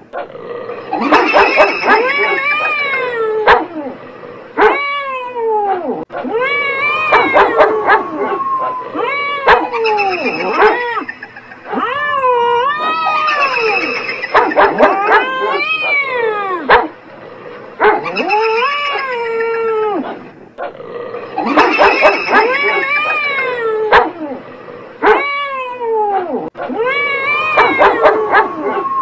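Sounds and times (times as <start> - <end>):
cats yowling: 0.7 - 4.0, 4.6 - 16.8, 18.0 - 20.2, 21.2 - 24.4, 25.0 - 29.0
dog barks: 1.0 - 2.7, 3.4 - 3.7, 4.6 - 4.8, 7.1 - 8.2, 9.5 - 11.0, 14.3 - 16.1, 16.7 - 17.0, 17.8 - 18.3, 21.4 - 23.2, 23.9 - 24.2, 27.6 - 28.8.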